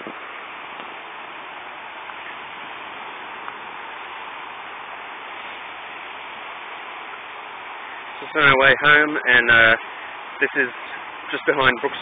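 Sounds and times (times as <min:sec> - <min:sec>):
fast-flowing creek: 0:00.0 - 0:12.0
heavy rain hiss: 0:00.0 - 0:12.0.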